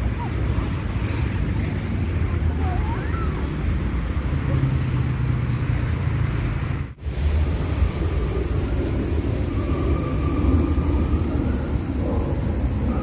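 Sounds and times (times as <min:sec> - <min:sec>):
steady low rumble: 0:06.3 - 0:13.0
garden sprinkler hissing: 0:07.0 - 0:13.0.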